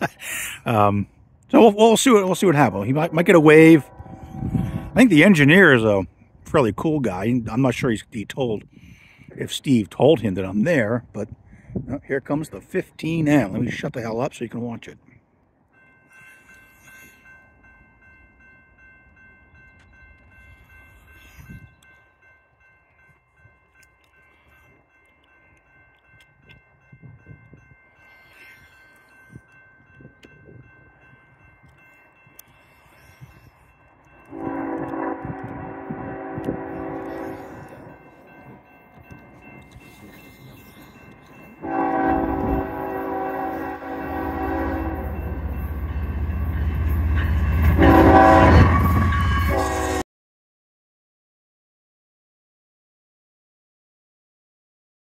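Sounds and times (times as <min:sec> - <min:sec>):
diesel locomotive engine rumbling: 0:00.0 - 0:50.0
distant train horn: 0:02.1 - 0:05.9, 0:34.2 - 0:38.1, 0:41.6 - 0:50.0
low rumble: 0:02.6 - 0:05.4.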